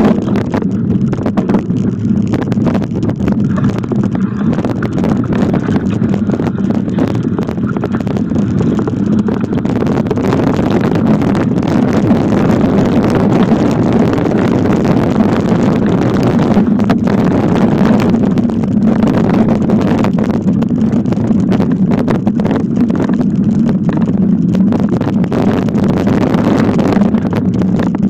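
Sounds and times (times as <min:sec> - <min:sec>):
bike rattles and knocks: 0:00.0 - 0:28.0
bike rumbling over dirt trail: 0:00.0 - 0:28.0.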